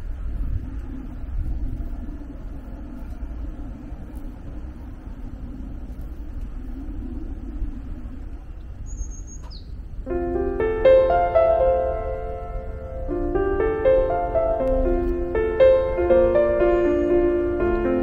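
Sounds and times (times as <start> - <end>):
low outdoor rumble: 0.0 - 18.0
gentle piano melody: 10.0 - 18.0.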